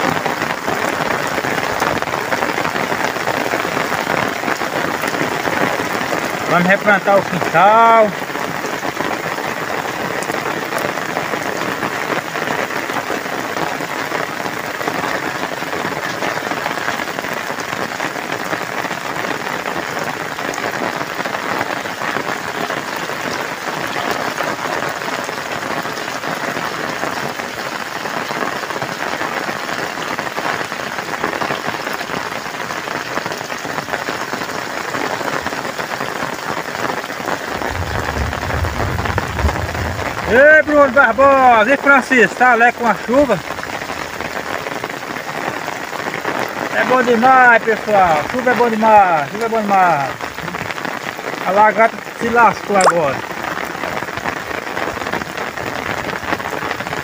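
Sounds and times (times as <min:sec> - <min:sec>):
steady rain on wet ground: 0:00.0 - 0:57.0
low rumble: 0:37.5 - 0:41.2.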